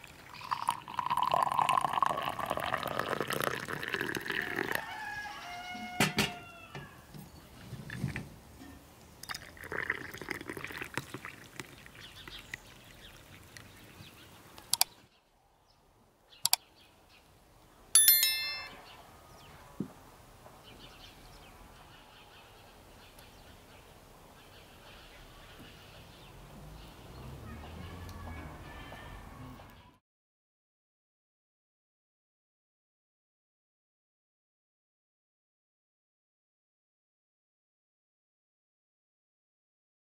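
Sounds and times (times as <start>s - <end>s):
tea glasses clinking: 0.4s - 4.8s, 8.6s - 11.2s, 18.0s - 18.8s
notification bell ding: 18.0s - 18.9s.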